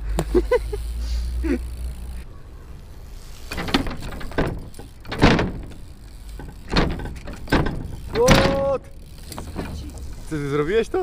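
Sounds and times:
bike wheels rolling on ramp: 0:00.0 - 0:11.0
bike knocking and thudding on ramp: 0:03.4 - 0:11.0.

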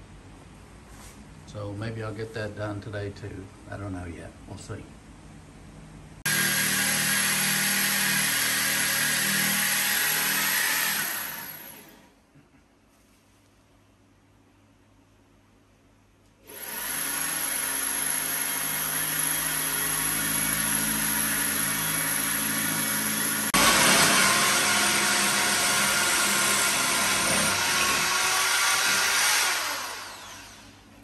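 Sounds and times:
electric drill boring into wall: 0:06.3 - 0:12.1, 0:16.4 - 0:30.8.

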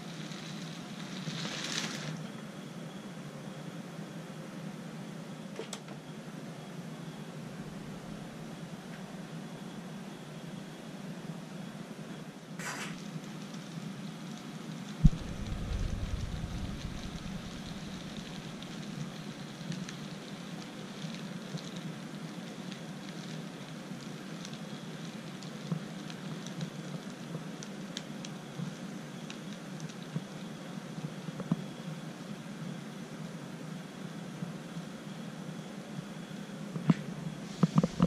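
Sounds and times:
sharp thump: 0:15.0 - 0:18.7.

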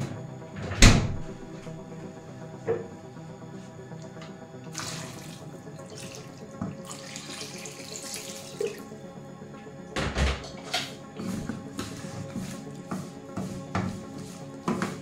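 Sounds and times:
water pouring onto vegetables: 0:04.7 - 0:08.8.

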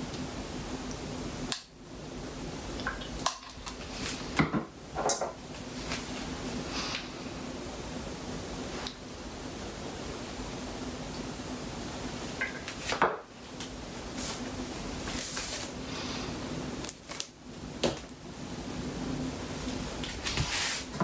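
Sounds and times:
steady low hum: 0:00.0 - 0:21.0
rustling: 0:20.0 - 0:21.0.

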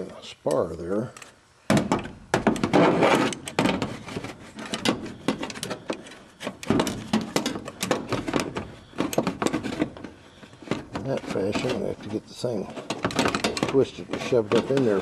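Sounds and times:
knocking and scraping inside metal wing: 0:01.8 - 0:15.0.

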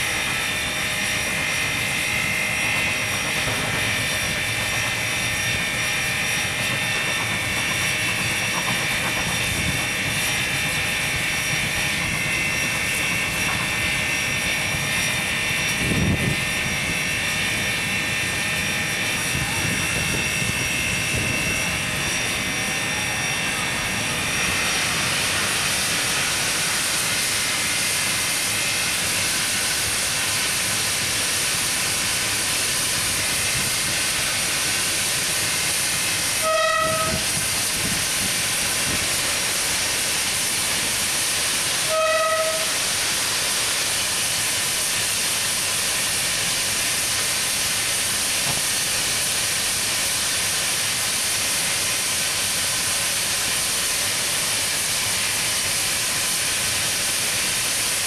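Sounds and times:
steady steam hiss: 0:00.0 - 0:58.0
steam locomotive whistle blasts: 0:36.2 - 0:37.5, 0:41.8 - 0:43.0.

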